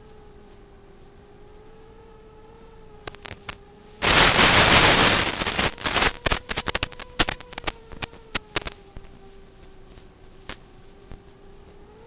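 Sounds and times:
faint steady hum: 0:00.0 - 0:12.0
static crackles and pops: 0:02.5 - 0:12.0
video receiver static hiss: 0:02.6 - 0:11.9.

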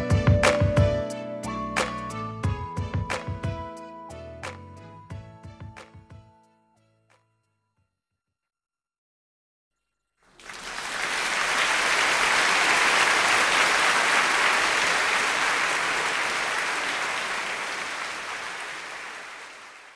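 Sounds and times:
audience applause: 0:10.4 - 0:19.9.

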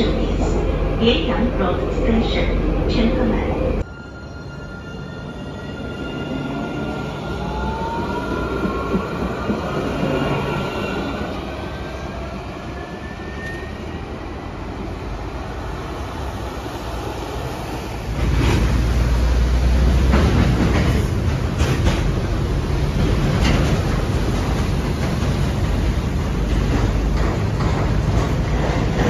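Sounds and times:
wheels rumbling on rail: 0:14.8 - 0:29.0.

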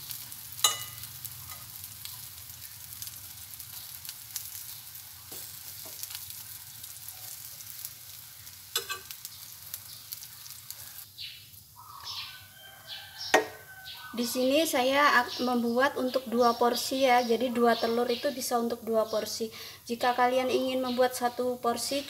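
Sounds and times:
bread sizzling in a pan: 0:00.0 - 0:17.0
spoon clinking against bowl: 0:00.6 - 0:01.6, 0:08.8 - 0:09.1.

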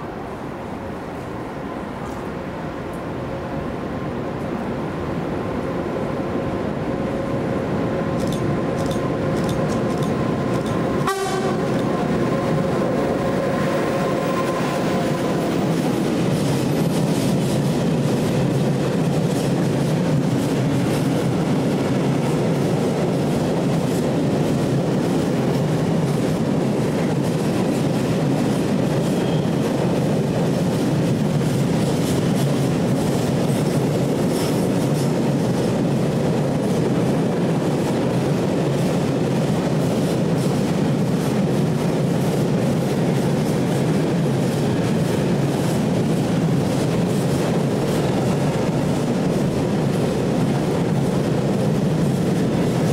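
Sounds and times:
train rumble: 0:00.0 - 0:52.9
locomotive steady tones: 0:02.9 - 0:30.0.

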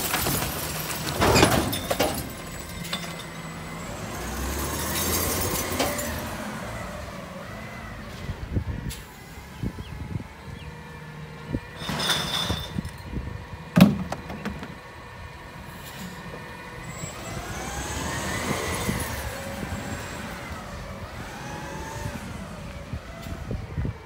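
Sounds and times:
diesel engine pulling away: 0:00.0 - 0:24.0.

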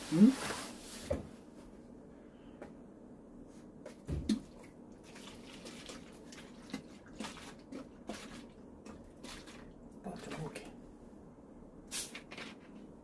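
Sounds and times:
liquid sloshing in plastic bottle: 0:03.9 - 0:10.7.

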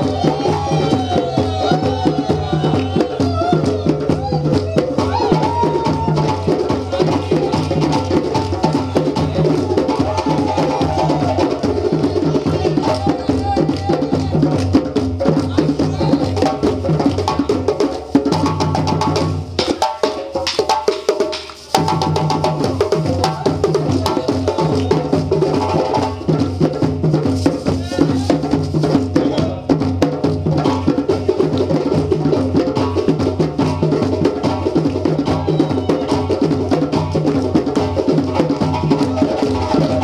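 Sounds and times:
djembe drum ensemble: 0:00.0 - 0:40.0
hand claps: 0:13.6 - 0:14.8, 0:20.4 - 0:21.6, 0:37.1 - 0:37.7.

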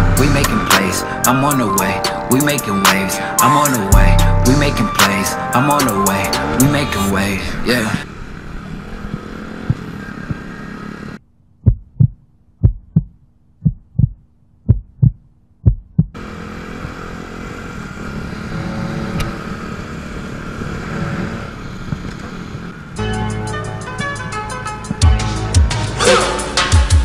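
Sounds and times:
music with a beat: 0:00.0 - 0:07.0, 0:23.0 - 0:27.0
small motorcycle engine hum: 0:00.0 - 0:11.2, 0:16.1 - 0:25.7
heartbeat sound effect: 0:11.6 - 0:16.2.

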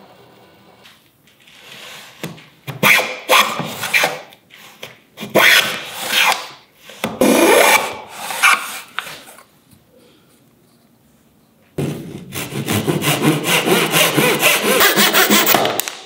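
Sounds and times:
hand plane rasping on wood: 0:12.4 - 0:15.6.

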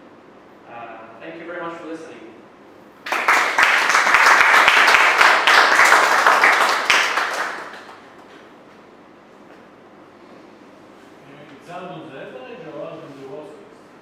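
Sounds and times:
audience applauding: 0:03.0 - 0:08.3.

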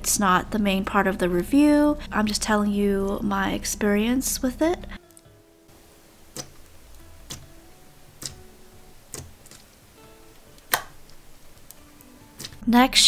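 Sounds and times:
soft background music: 0:00.0 - 0:13.0
slime popping: 0:08.1 - 0:08.4, 0:09.0 - 0:09.8, 0:10.6 - 0:11.7.

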